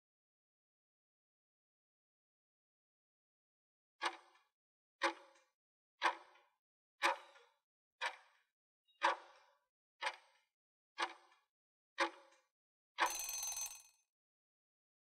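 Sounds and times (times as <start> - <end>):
timer ticking: 13.0 - 13.8
ringing alarm: 13.0 - 13.9.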